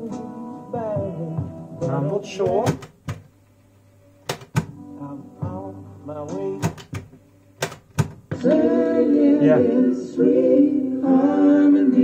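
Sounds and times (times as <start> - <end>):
song with singing from speakers: 0.0 - 3.4, 4.4 - 12.0
cassette deck clicks: 2.4 - 3.3, 4.2 - 4.8, 6.3 - 8.3.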